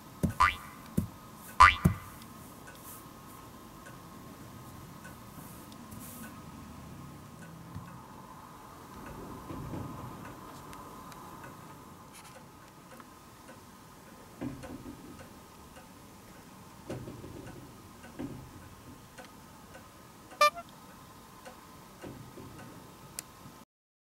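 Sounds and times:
faint high hum: 0.0s - 14.0s, 20.0s - 21.4s
high-pitched chirp-like tone: 0.4s - 0.8s, 20.4s - 20.6s
soft ticks: 2.2s - 2.9s, 3.8s - 4.1s, 5.0s - 6.4s, 7.3s - 8.0s, 10.2s - 16.5s, 17.4s - 23.3s.

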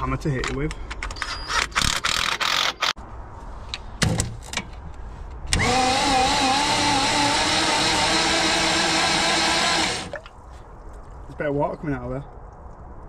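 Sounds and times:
starter motor cranking engine: 5.5s - 10.2s.

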